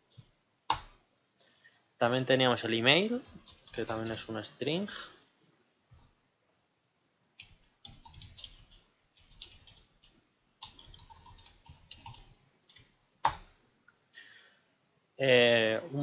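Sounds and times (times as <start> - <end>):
computer keyboard typing: 3.1 - 4.5, 7.4 - 13.6.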